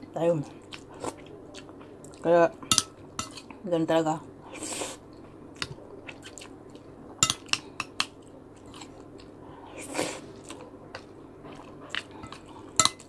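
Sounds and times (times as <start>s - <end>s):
person chewing: 0.5s - 3.6s, 4.8s - 13.0s
spoon clicking against dishes: 7.2s - 8.2s, 12.2s - 13.0s.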